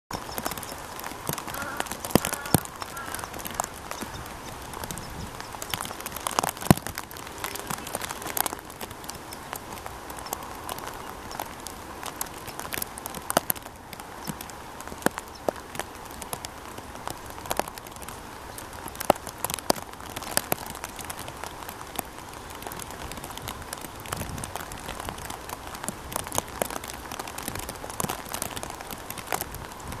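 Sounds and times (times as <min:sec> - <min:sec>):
raindrops pattering on leaves: 0:00.1 - 0:30.0
steady rain hiss: 0:00.1 - 0:30.0.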